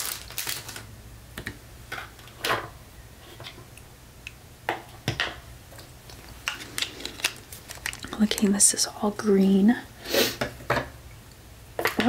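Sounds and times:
paper rustling: 0.0 - 0.8, 6.1 - 8.2.

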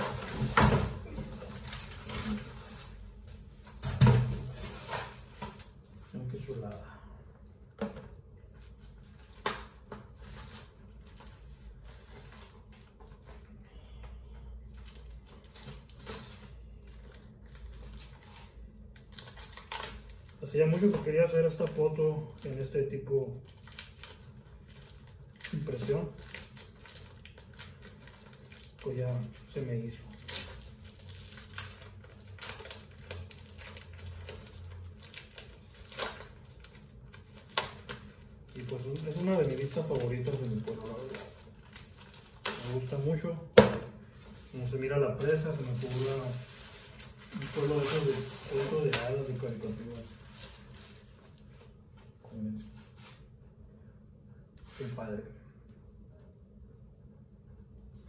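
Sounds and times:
plastic wrapping crinkling: 0.0 - 6.8, 14.7 - 43.4, 44.1 - 51.7.

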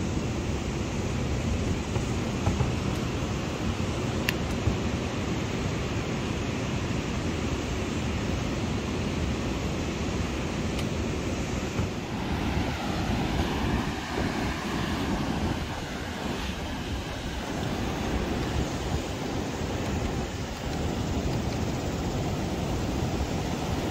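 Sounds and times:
surf rushing: 0.0 - 23.9
wind buffeting microphone: 8.2 - 23.9.

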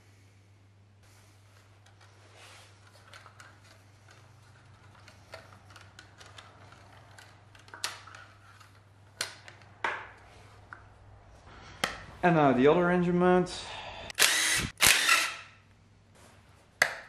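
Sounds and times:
wiring loom clicks and rustles: 1.6 - 10.3.

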